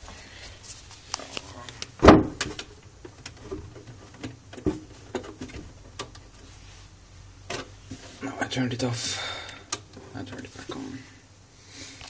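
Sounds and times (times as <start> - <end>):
handling knocks: 2.0 - 2.7.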